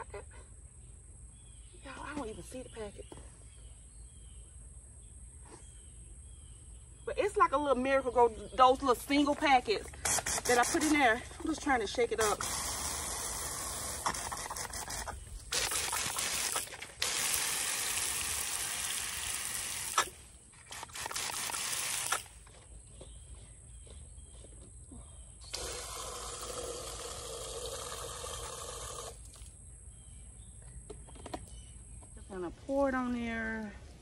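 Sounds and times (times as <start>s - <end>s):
water spraying from hose: 10.0s - 11.2s, 12.2s - 22.3s, 25.5s - 29.5s.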